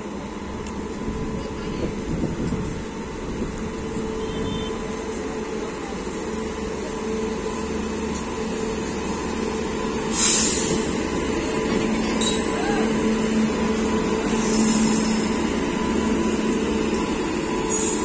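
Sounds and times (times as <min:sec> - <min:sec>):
electric locomotive humming: 0:00.0 - 0:18.0
train wheels rumbling on rail: 0:00.0 - 0:18.0
loud hiss of air: 0:10.0 - 0:11.0.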